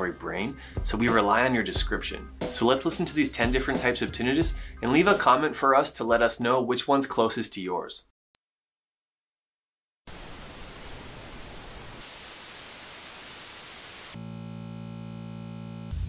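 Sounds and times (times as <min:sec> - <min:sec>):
white-noise hiss: 0:10.1 - 0:14.3
bright static hiss: 0:10.1 - 0:16.0
low electrical buzz: 0:13.0 - 0:16.0
high-pitched ringing tone: 0:14.3 - 0:16.0.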